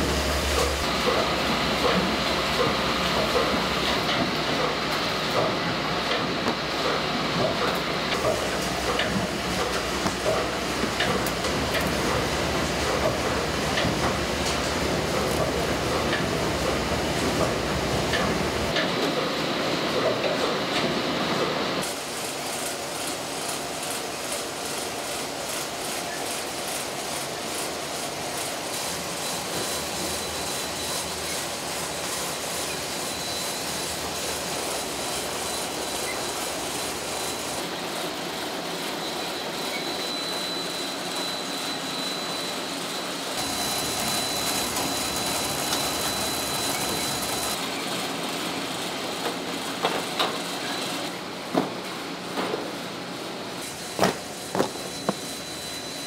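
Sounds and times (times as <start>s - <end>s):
high machine whine: 21.8s - 49.1s, 53.2s - 56.0s
factory machinery din: 43.4s - 47.8s, 53.6s - 56.0s.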